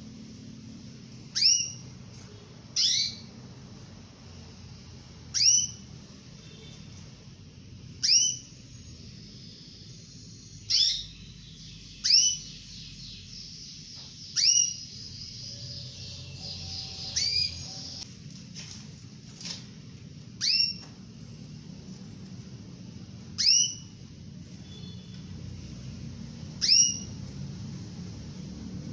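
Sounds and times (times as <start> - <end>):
soft bird twittering: 0.4 - 3.4, 5.0 - 18.1, 20.3 - 28.2
canary upward-sweeping calls: 1.3 - 3.4, 5.3 - 6.8, 7.9 - 18.1, 20.4 - 20.9, 23.1 - 27.8.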